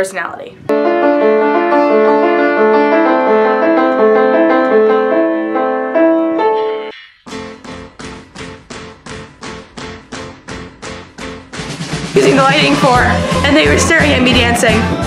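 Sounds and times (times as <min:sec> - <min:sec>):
piano playing: 0:00.7 - 0:15.0
recorded music with steady beat: 0:07.2 - 0:15.0.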